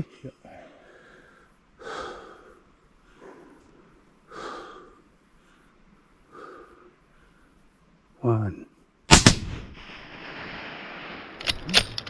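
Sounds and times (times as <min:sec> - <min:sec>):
man breathing slowly: 0:00.4 - 0:07.8.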